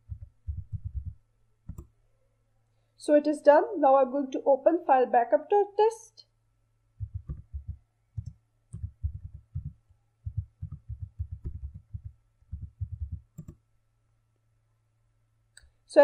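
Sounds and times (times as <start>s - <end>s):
computer keyboard typing: 0.0s - 1.9s, 7.0s - 13.6s.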